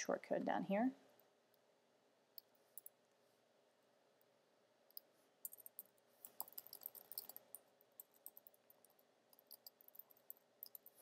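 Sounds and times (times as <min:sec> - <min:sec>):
computer keyboard typing: 0:05.4 - 0:11.0.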